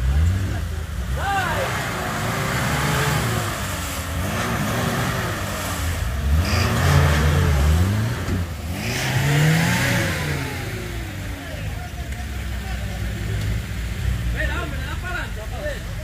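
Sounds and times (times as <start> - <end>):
car engine revving under load: 0.0 - 16.0.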